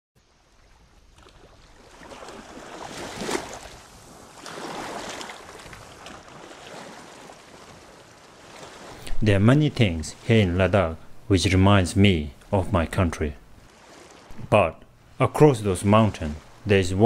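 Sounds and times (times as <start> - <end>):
small waves washing on shore: 0.2 - 10.8, 13.6 - 14.4, 15.0 - 16.9.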